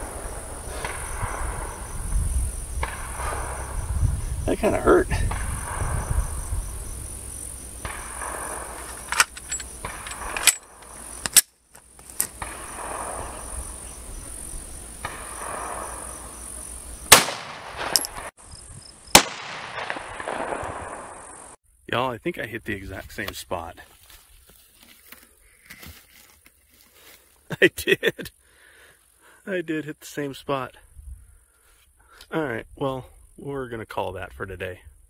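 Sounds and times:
high insect buzz: 0:00.0 - 0:19.2
pistol shots: 0:17.1 - 0:18.3, 0:19.1 - 0:21.1.

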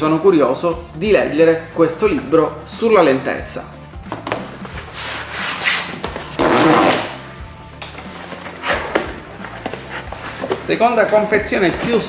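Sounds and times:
cardboard rubbing and scraping: 0:04.7 - 0:06.9, 0:08.1 - 0:10.9.

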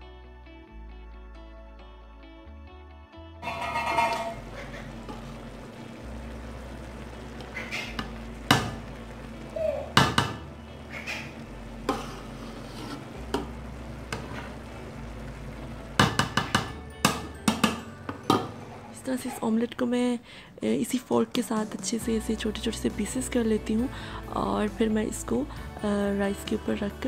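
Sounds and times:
steady low hum: 0:04.4 - 0:16.0
metal spatula stirring rice in pot: 0:11.8 - 0:13.5.

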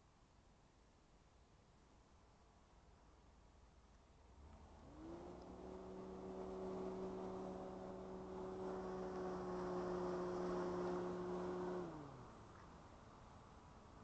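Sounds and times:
small electric motor whirring: 0:04.9 - 0:12.2.

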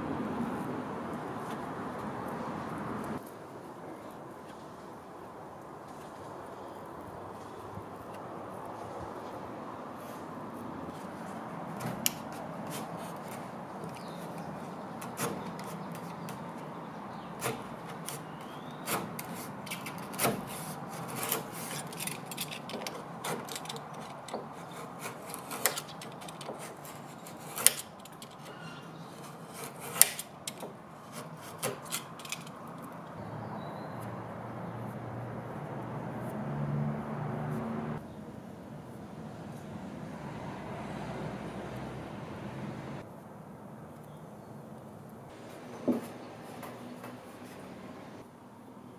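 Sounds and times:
knife scraping wood: 0:10.9 - 0:32.6.

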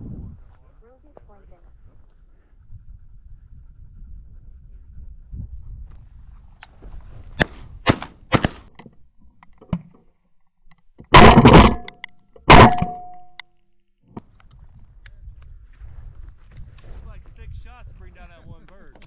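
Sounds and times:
shotgun blasts: 0:07.4 - 0:08.7, 0:11.1 - 0:11.9.

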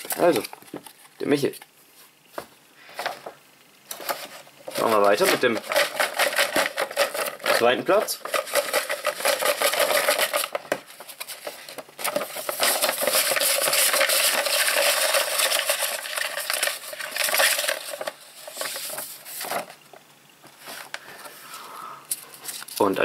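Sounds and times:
paper slips rustling: 0:00.0 - 0:01.6, 0:03.9 - 0:19.8.

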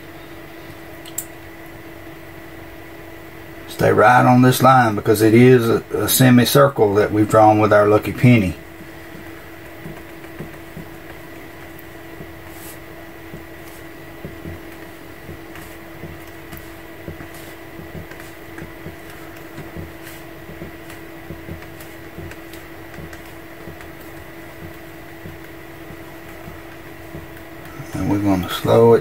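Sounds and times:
steady hum: 0:00.0 - 0:29.0
leather shifting on paper: 0:08.7 - 0:28.9.

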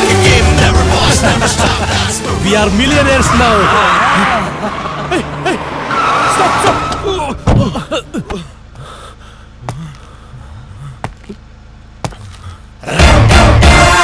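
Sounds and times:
loud music: 0:00.0 - 0:05.2, 0:12.9 - 0:14.0
car tyres skidding: 0:00.9 - 0:08.4.

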